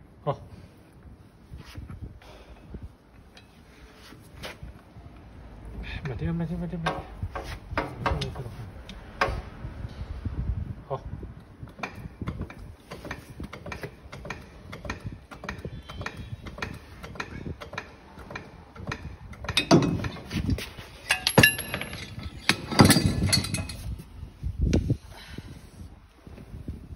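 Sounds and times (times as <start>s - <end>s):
loud metal clanks and rings: 19.5s - 20.3s, 20.9s - 24.0s.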